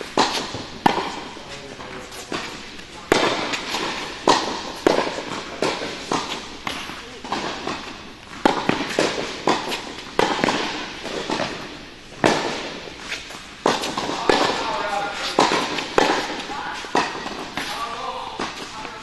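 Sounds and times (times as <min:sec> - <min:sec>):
tennis balls bouncing on hard court: 0:00.0 - 0:19.0
tennis balls struck by rackets: 0:00.0 - 0:19.0.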